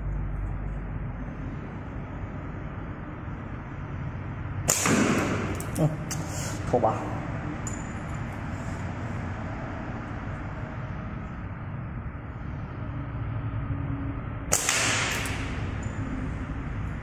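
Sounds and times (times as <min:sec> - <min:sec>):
low background rumble: 0:00.0 - 0:06.1
slingshot snap: 0:04.7 - 0:06.3, 0:14.5 - 0:15.6.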